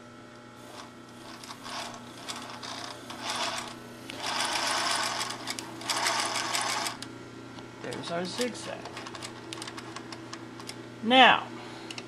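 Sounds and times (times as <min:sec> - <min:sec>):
sewing machine stitching: 0:00.7 - 0:07.0.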